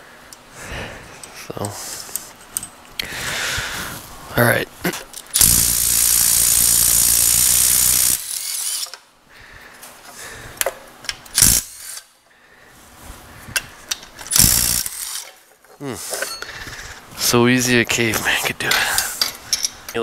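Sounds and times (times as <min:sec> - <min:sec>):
clicks and knocks of tool and parts: 0:01.2 - 0:02.9, 0:08.2 - 0:09.1, 0:09.7 - 0:12.1, 0:13.5 - 0:17.0, 0:18.7 - 0:20.0
cordless power tool spinning: 0:05.4 - 0:08.9, 0:14.3 - 0:15.3.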